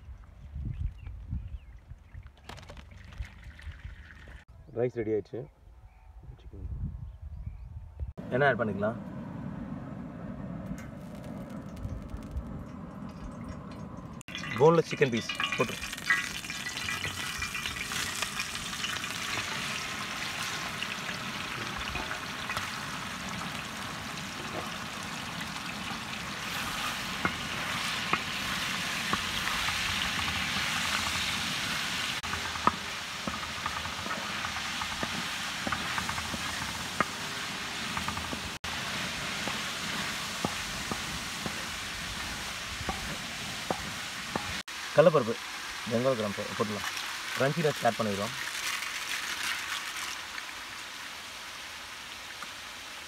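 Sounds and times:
chicken sizzling in hot oil: 14.2s - 51.5s.

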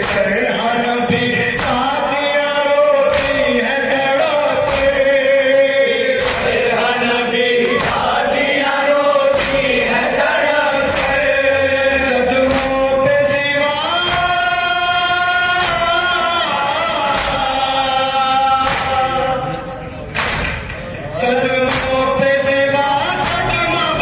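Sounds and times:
group of men singing: 0.0s - 20.1s, 20.9s - 24.0s
man chanting into a microphone: 0.0s - 20.1s, 20.9s - 24.0s
chest-beating slaps: 3.0s - 3.5s, 4.6s - 5.1s, 6.1s - 6.7s, 7.7s - 8.2s, 9.3s - 9.9s, 10.8s - 11.3s, 12.4s - 14.5s, 17.1s - 17.6s, 18.6s - 19.1s, 20.1s - 20.8s, 21.7s - 22.6s.

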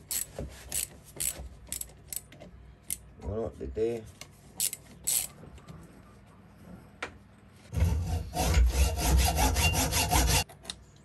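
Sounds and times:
hacksaw cutting steel: 7.8s - 10.5s.

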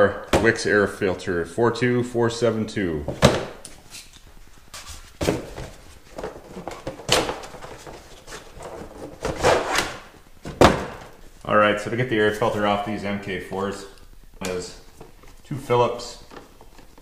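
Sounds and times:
objects knocking and scraping: 4.8s - 11.2s.

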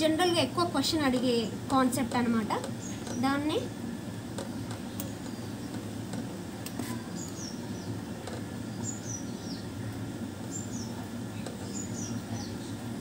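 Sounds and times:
low background hum: 0.0s - 13.0s
small bird chirping: 6.8s - 8.0s, 8.6s - 9.7s, 10.4s - 11.0s, 11.6s - 12.8s.

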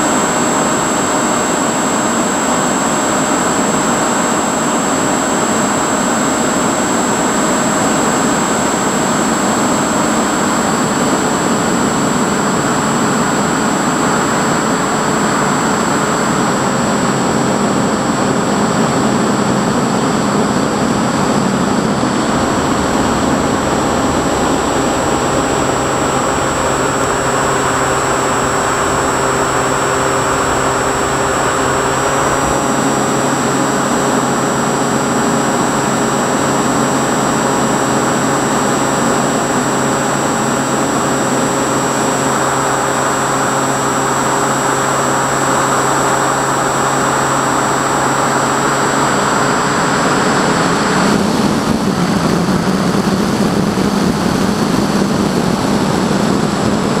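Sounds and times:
wind rush on microphone: 0.0s - 57.0s
electric motor whine: 18.7s - 36.1s.

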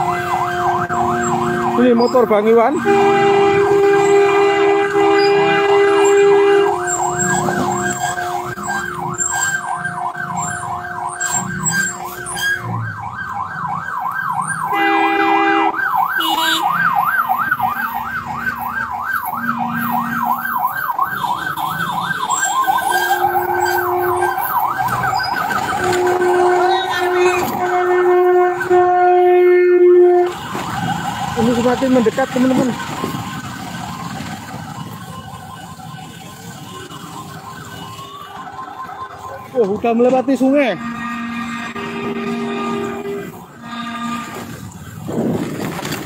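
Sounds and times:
electronic siren warbling: 0.0s - 3.1s, 4.9s - 29.0s
two-tone vehicle horn: 2.8s - 8.7s, 14.7s - 16.7s, 22.9s - 24.4s, 25.8s - 30.4s, 40.6s - 44.7s.

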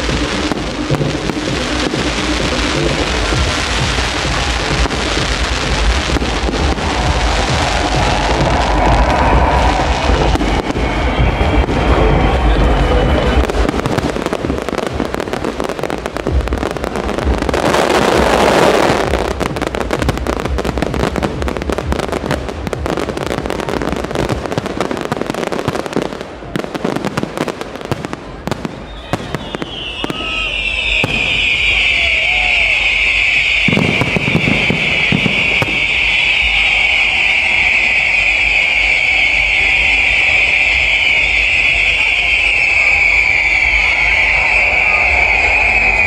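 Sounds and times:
festival music with bass beat: 0.0s - 46.0s
fireworks crackling and banging: 0.0s - 46.0s
shrill whistling: 7.7s - 13.5s, 28.8s - 46.0s.

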